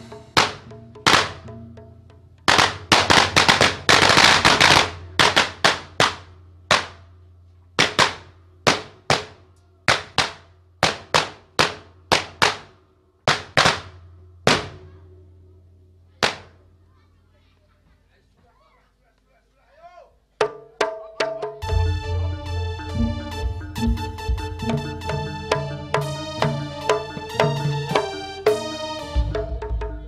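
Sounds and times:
firecrackers banging: 0:00.0 - 0:01.5, 0:02.5 - 0:15.0, 0:16.2 - 0:16.7.

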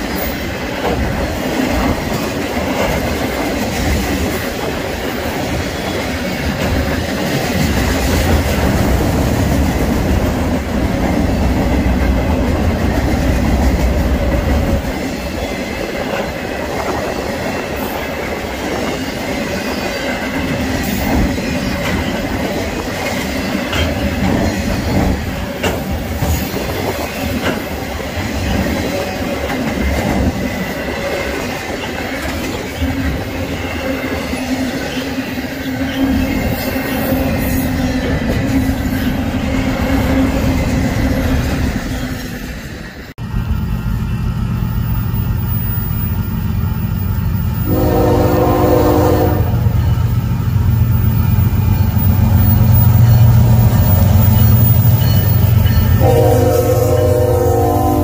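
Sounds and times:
train wheels rumbling on rail: 0:00.0 - 0:58.0
high wheel squeal: 0:50.7 - 0:57.1.

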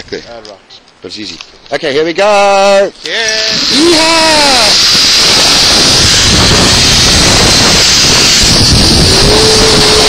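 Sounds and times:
zipline trolley on steel cable: 0:02.7 - 0:10.0
wind rushing over microphone: 0:03.3 - 0:10.0.

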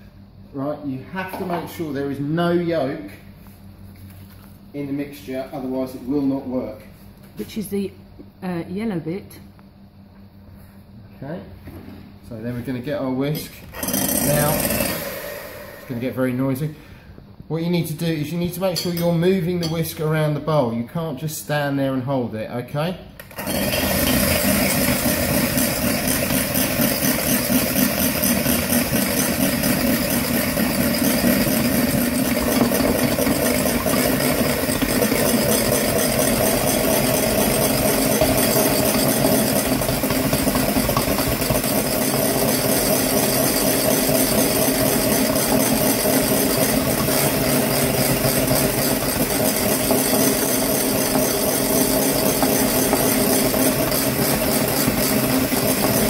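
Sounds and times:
electric hand mixer whisking: 0:13.7 - 0:16.2, 0:23.3 - 0:56.0
beaters rattling in bowl: 0:23.8 - 0:56.0.

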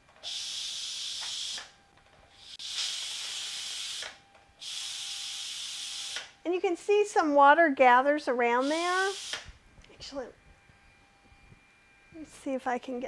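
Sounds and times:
steam hissing from valve: 0:00.2 - 0:01.7, 0:02.4 - 0:06.3, 0:08.6 - 0:09.5.

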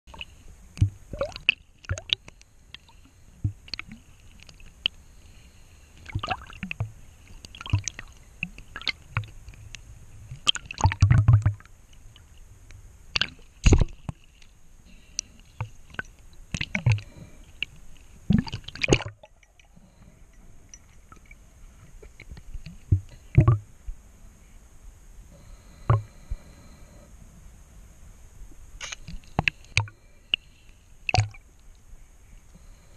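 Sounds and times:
underwater clicks and knocks: 0:00.8 - 0:02.2, 0:07.6 - 0:09.6, 0:10.3 - 0:11.7, 0:13.2 - 0:14.2, 0:22.0 - 0:23.6, 0:25.9 - 0:26.1, 0:31.1 - 0:31.4
water sloshing: 0:18.3 - 0:20.0.

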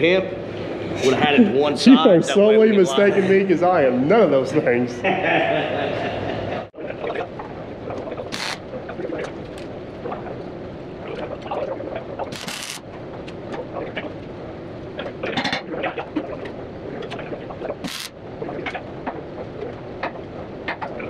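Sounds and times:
workshop background noise: 0:06.0 - 0:21.0
welding arc crackle: 0:08.2 - 0:08.7, 0:12.2 - 0:12.9, 0:17.7 - 0:18.2.

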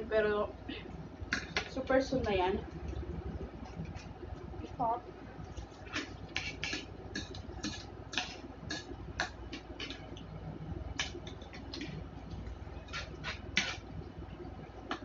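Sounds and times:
spoon scraping on plate: 0:05.9 - 0:10.1, 0:12.8 - 0:13.9.

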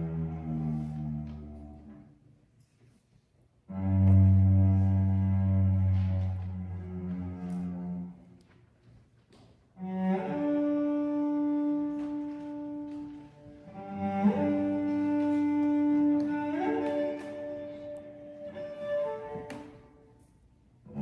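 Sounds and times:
cello playing long notes: 0:00.0 - 0:02.2, 0:03.6 - 0:08.6, 0:09.8 - 0:21.0
fiddle playing long notes: 0:09.8 - 0:20.0.

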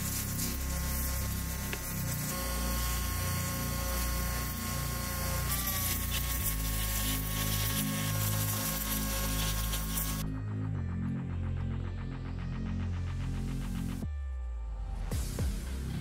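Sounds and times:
pressure washer spraying water: 0:00.0 - 0:10.2
pressure washer whine: 0:00.0 - 0:10.3
background music: 0:00.0 - 0:16.0.

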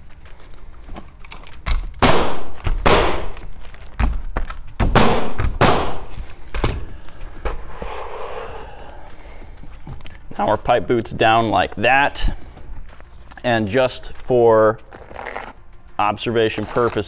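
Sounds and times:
nail gun shots: 0:02.0 - 0:03.4, 0:04.8 - 0:06.1.

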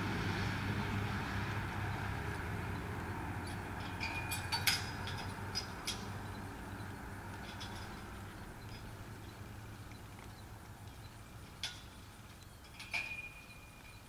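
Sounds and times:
light clicks and clinks: 0:03.4 - 0:14.0.

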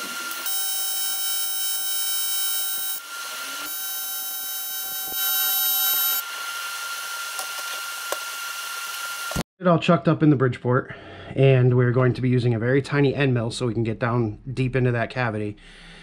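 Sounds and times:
welding arc buzzing: 0:00.0 - 0:09.4.

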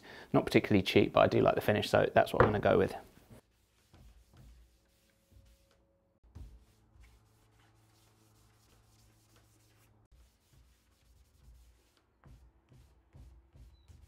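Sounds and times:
cloth rubbing on wood: 0:02.6 - 0:13.8.

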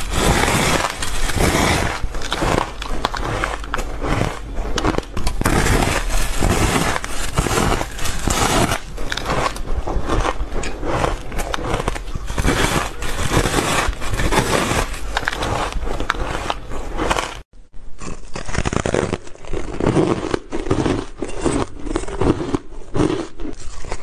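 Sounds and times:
ice being chewed crunching: 0:00.0 - 0:24.0.

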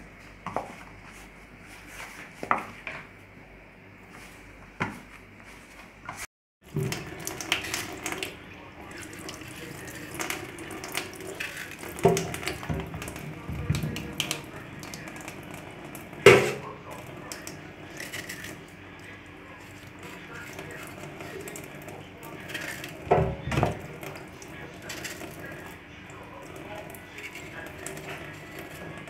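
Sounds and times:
hand working flour in metal bowl: 0:05.5 - 0:29.0
tap water running into sink: 0:06.6 - 0:18.7, 0:19.8 - 0:29.0.

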